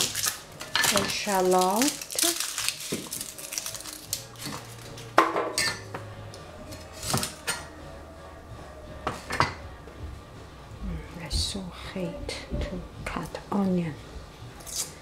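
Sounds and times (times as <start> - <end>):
dishes and utensils clinking: 0.0 - 1.4, 4.4 - 6.1, 6.7 - 7.8, 9.0 - 9.7.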